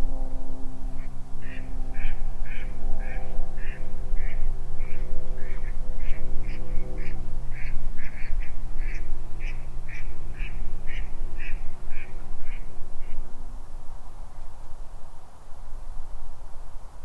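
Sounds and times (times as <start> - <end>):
low steady hum and rumble: 0.0 - 17.0
ducks quacking: 1.0 - 13.2.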